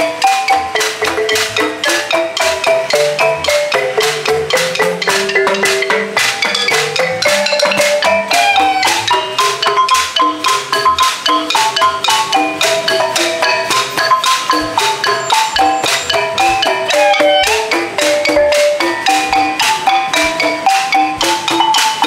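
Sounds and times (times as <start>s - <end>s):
bamboo xylophone: 0.0s - 22.0s.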